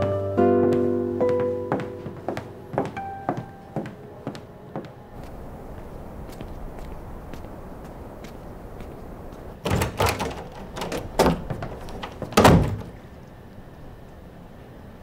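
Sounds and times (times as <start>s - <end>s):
door rattling: 9.6s - 13.1s.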